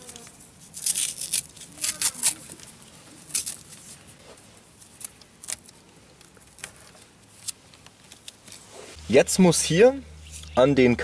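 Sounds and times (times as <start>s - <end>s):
tape being peeled and unwound: 0.0s - 8.7s.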